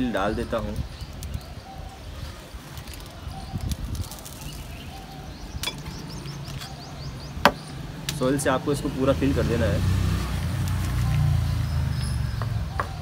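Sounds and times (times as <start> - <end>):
soil scraping and crumbling: 2.3 - 7.0.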